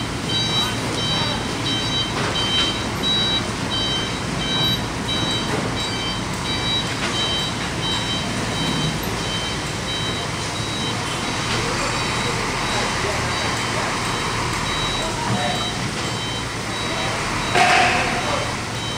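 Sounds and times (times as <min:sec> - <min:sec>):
diesel engine running: 0:00.0 - 0:18.9
reversing alarm beeping: 0:00.0 - 0:18.9.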